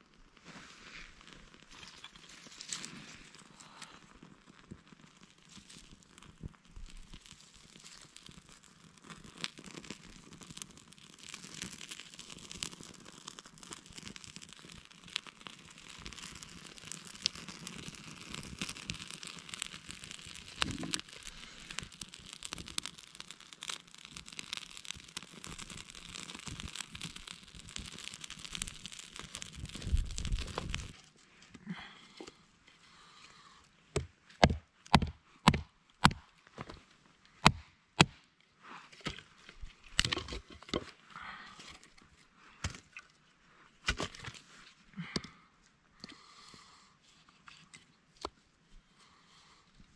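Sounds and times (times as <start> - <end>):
small fire crackling: 0.0 - 49.9
wood shavings rustling and snapping: 9.1 - 31.0
axe hitting a log: 34.0 - 36.2, 37.4 - 38.2.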